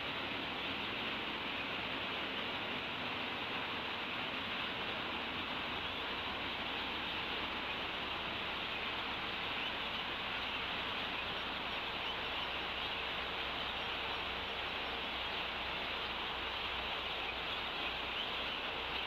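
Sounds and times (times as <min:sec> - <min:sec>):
microphone background hiss: 0:00.0 - 0:19.0.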